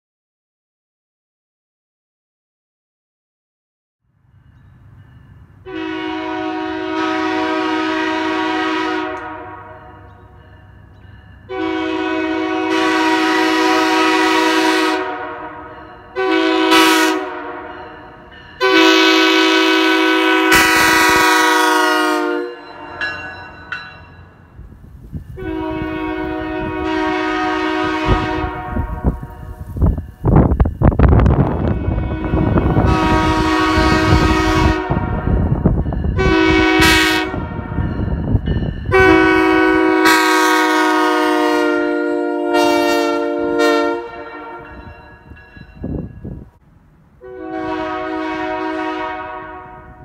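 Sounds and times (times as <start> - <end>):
air horn blasts: 5.7 - 10.0, 11.5 - 17.9, 18.6 - 23.1, 25.4 - 29.6, 31.6 - 35.4, 36.2 - 37.8, 38.9 - 44.8, 47.2 - 50.0.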